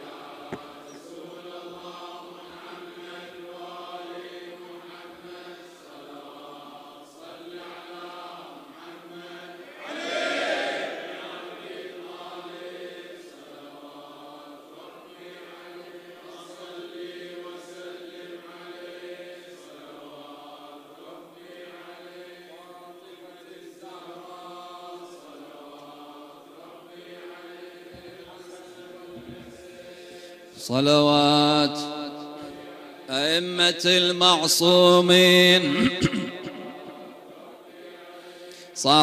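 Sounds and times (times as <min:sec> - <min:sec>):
men chanting together: 0:00.0 - 0:39.0
loud shout: 0:09.8 - 0:11.2.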